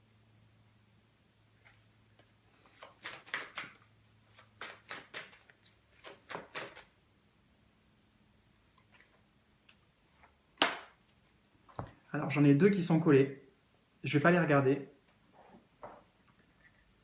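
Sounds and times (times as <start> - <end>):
cards being shuffled: 1.6 - 6.9.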